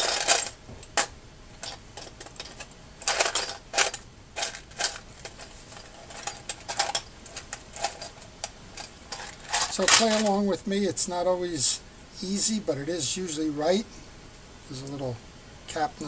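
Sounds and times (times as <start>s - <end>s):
small metal parts clinking: 0.0s - 10.4s.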